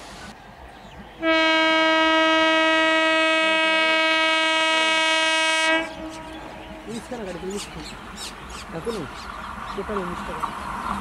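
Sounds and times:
train horn blast: 1.2s - 7.0s.

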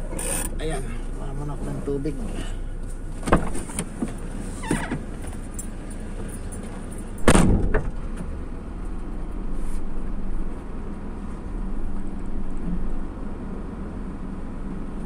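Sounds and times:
vehicle engine idling: 0.0s - 15.0s
thump and rattle: 3.2s - 8.3s.

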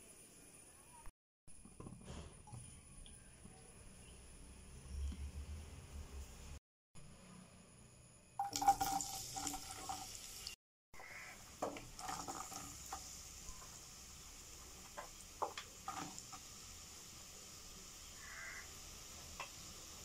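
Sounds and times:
onions sizzling in oil: 8.4s - 20.0s.

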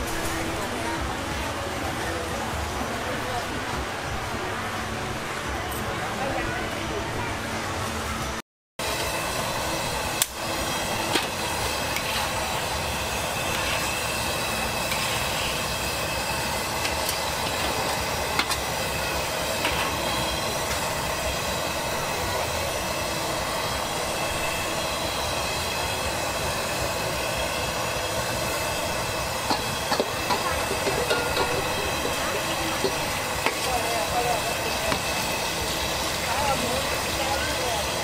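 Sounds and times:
gas burner hissing: 8.8s - 38.0s.

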